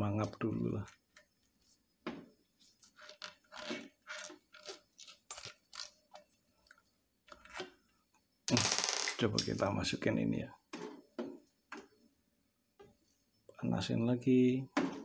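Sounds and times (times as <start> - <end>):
rubber hose rubbing and crackling: 2.6 - 6.2.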